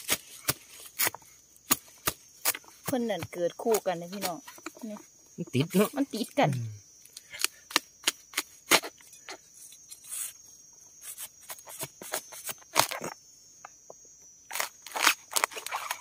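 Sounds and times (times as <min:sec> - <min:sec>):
high insect buzz: 0:00.0 - 0:16.0
bamboo shoots cracking and snapping: 0:06.5 - 0:09.4, 0:11.5 - 0:13.2, 0:14.5 - 0:16.0.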